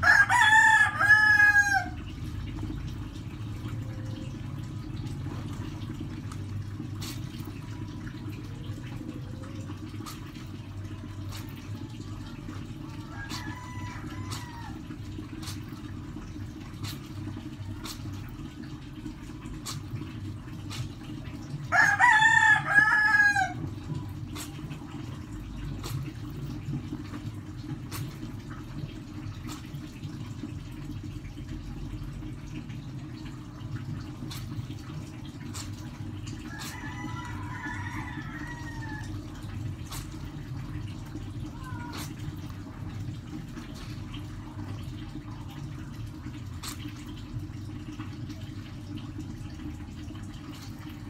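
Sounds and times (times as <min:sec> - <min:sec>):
rooster crowing: 0:00.0 - 0:02.0, 0:13.0 - 0:14.8, 0:21.7 - 0:23.6, 0:36.5 - 0:39.2
clothes scrubbed in water: 0:00.0 - 0:49.7.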